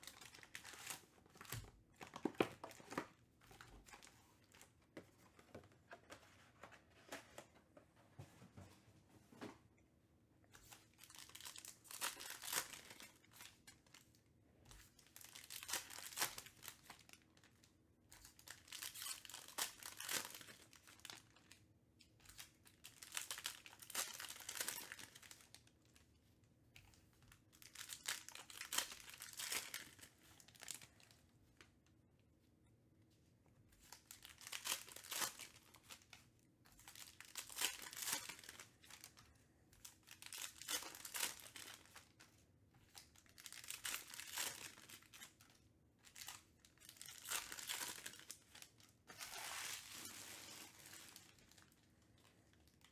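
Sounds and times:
foil wrappers tearing and crinkling: 10.6 - 14.0, 18.3 - 21.2, 22.4 - 25.5, 36.8 - 39.0, 39.8 - 42.0, 42.9 - 45.4, 46.1 - 51.7.

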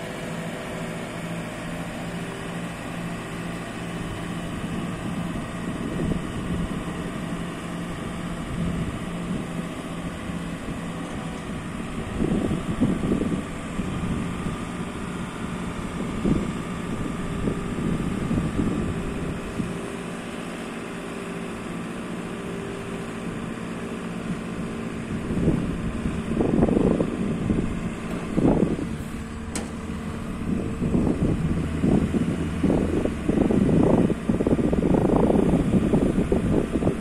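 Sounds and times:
diesel engine running: 0.0 - 37.0
wind buffeting microphone: 2.8 - 20.1, 23.3 - 37.0.

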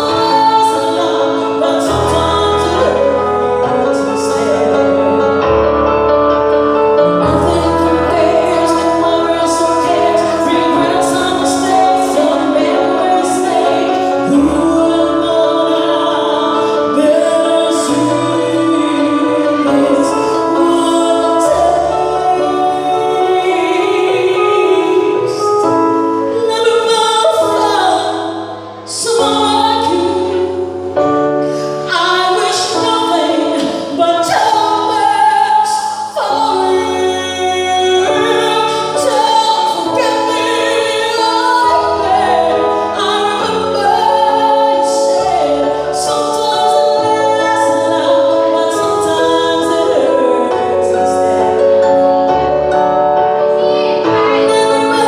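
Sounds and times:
woman singing a slow ballad: 0.0 - 5.5, 7.0 - 52.4, 53.6 - 55.0
electronic keyboard: 0.0 - 55.0
held bass notes: 1.0 - 25.2.

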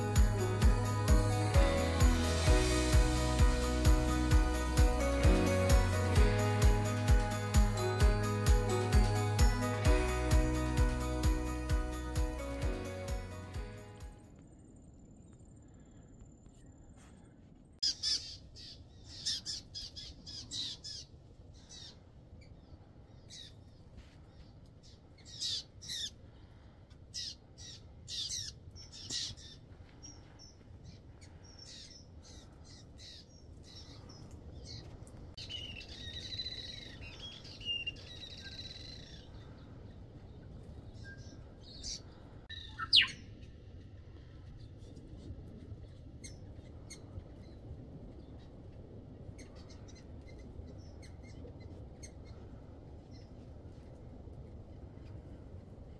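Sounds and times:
whistled bird song: 35.4 - 39.3, 40.9 - 43.4.

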